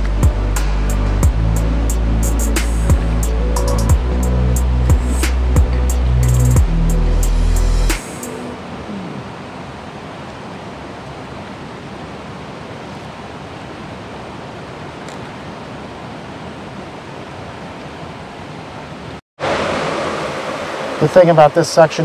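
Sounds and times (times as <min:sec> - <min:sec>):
river flowing over rocks: 0:08.0 - 0:22.0.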